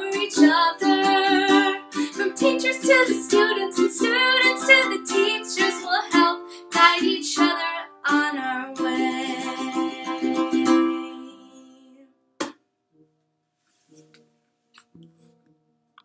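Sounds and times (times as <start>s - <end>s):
woman singing: 0.0s - 12.1s
strummed ukulele: 0.0s - 12.6s.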